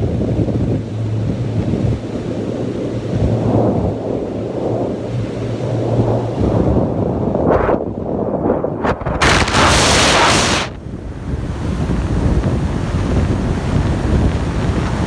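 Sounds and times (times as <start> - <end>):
wind rushing against cockpit: 0.0 - 15.0.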